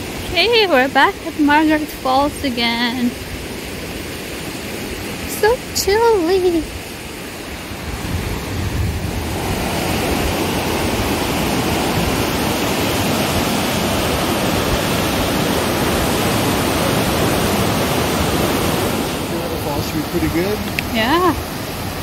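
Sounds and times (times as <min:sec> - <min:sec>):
creek rushing over rocks: 0:00.0 - 0:22.0.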